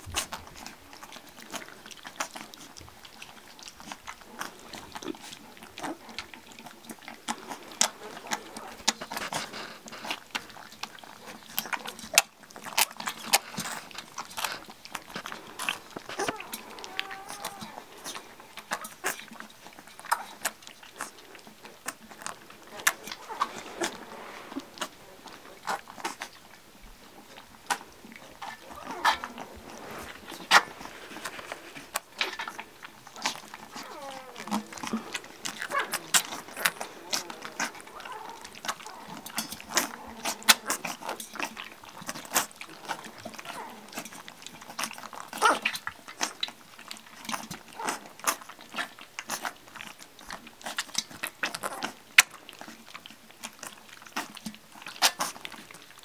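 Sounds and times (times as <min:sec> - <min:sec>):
puppies lapping and slurping: 0:00.0 - 0:56.0.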